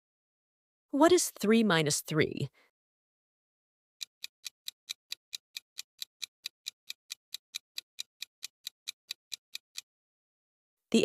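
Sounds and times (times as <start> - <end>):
ticking countdown timer: 4.0 - 9.9.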